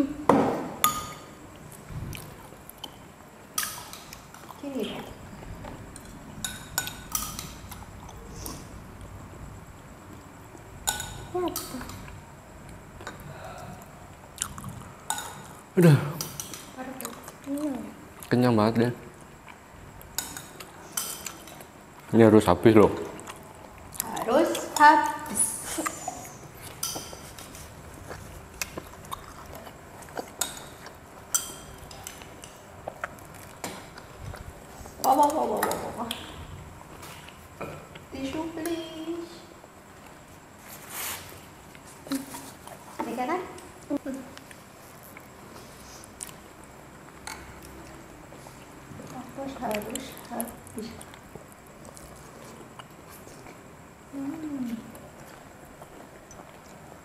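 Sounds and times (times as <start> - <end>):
faint eating sounds: 0.0 - 57.0
cutlery clinking on plate and glass: 30.4 - 32.6.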